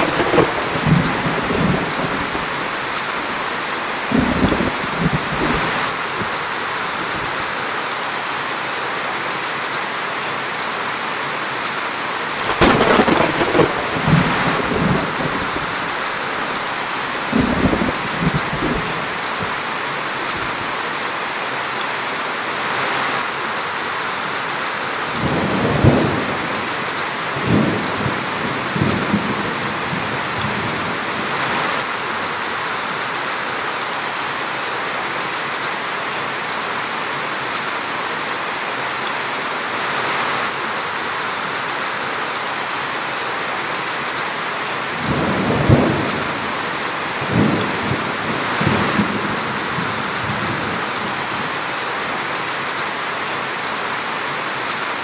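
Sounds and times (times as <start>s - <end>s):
low thunder rumbles: 0.0s - 6.4s, 12.4s - 19.6s, 45.0s - 51.4s
heavy rain on leaves: 0.0s - 55.0s.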